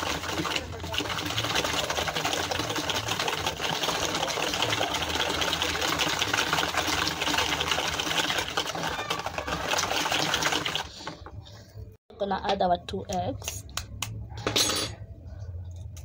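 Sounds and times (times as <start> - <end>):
whisk clattering in plastic bowl: 0.0 - 11.3.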